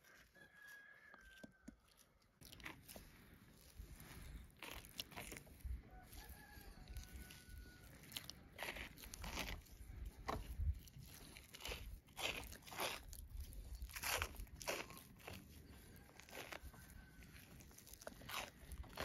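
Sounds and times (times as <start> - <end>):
faint rooster crowing: 0.0 - 2.1, 5.8 - 8.3, 15.7 - 17.8
food preparation crunching and knocks: 0.6 - 19.0.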